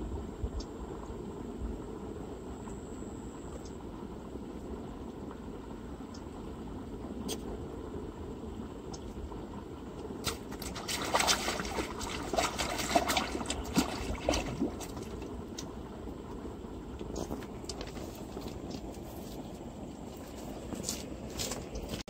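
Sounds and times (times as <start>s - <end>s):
fish splashing in water: 10.2s - 15.7s.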